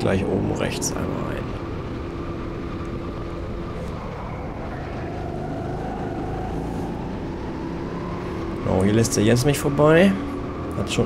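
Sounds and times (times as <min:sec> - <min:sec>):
go-kart engine running: 0:00.0 - 0:11.0.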